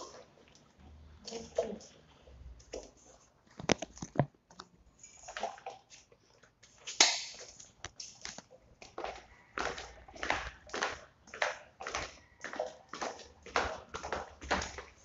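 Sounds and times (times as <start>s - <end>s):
sandalled footsteps on tiles: 5.3s - 15.0s.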